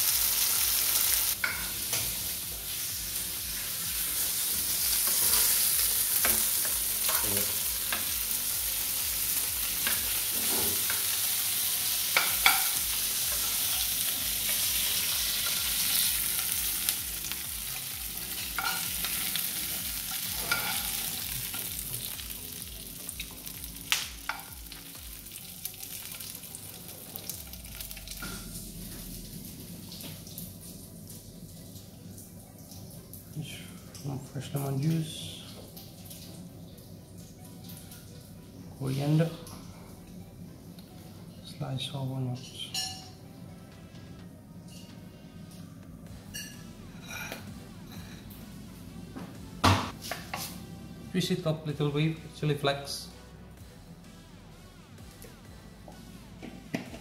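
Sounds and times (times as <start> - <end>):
food sizzling in a frying pan: 0.0 - 30.2.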